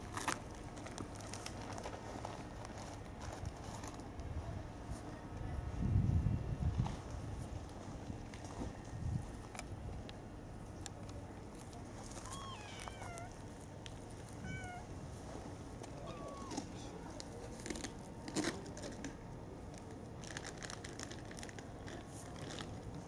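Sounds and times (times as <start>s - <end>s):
cat meowing: 12.3s - 13.4s, 14.4s - 14.9s, 16.0s - 16.7s.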